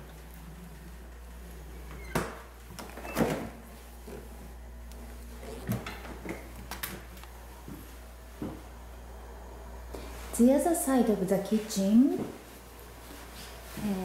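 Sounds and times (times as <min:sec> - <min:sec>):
refrigerator doors opening and shutting: 0:01.8 - 0:03.7.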